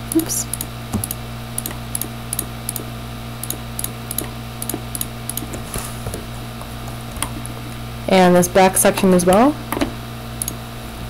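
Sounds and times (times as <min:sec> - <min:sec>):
low electrical hum: 0:00.0 - 0:11.0
mouse and keyboard clicks: 0:00.5 - 0:05.6.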